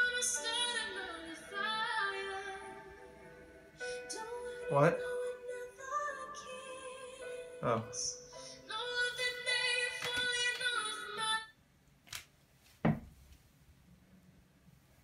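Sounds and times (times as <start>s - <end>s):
music with high singing voice: 0.0s - 11.6s
dull thump: 12.8s - 13.2s.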